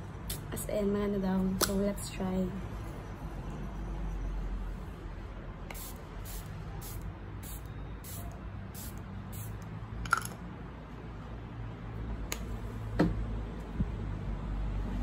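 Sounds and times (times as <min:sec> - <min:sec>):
spray bottle hisses: 0:05.7 - 0:09.6.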